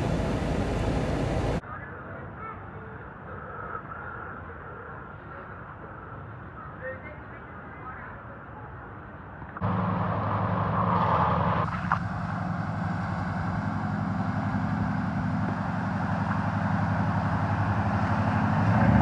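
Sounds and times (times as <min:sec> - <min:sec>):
truck engine running: 0:00.0 - 0:01.6, 0:09.6 - 0:19.0.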